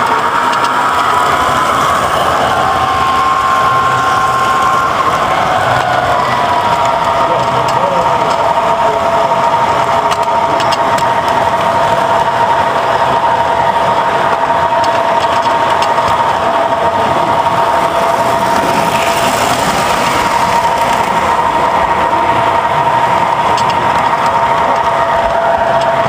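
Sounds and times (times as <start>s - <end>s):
light clicks from rails: 0.0s - 1.2s, 22.5s - 26.0s
toy train rolling rumble: 0.0s - 26.0s.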